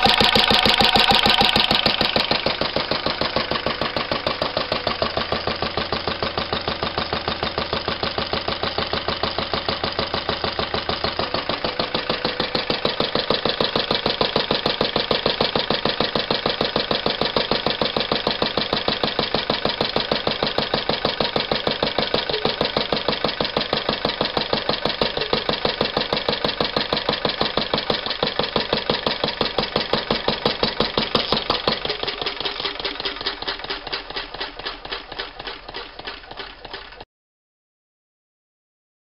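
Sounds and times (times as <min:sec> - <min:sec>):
stationary engine running: 0:00.0 - 0:37.0.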